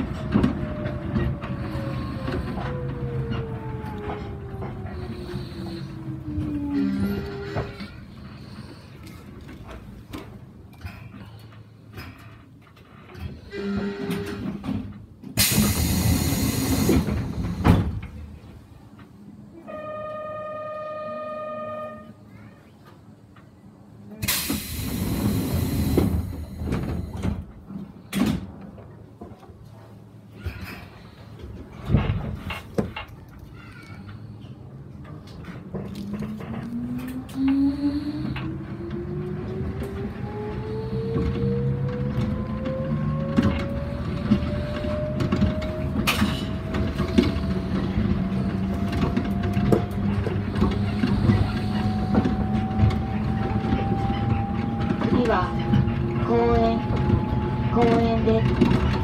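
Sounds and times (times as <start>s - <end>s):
low rumble with knocks: 38.2s - 59.0s.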